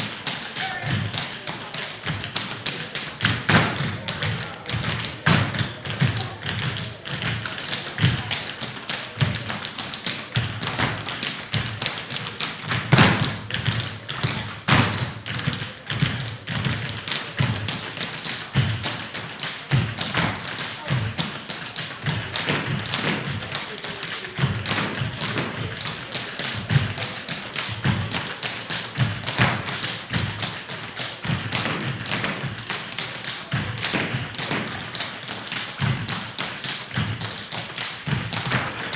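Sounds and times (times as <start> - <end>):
tap shoes on wooden floor: 0.2 - 38.9
loud foot stamps: 12.6 - 17.9.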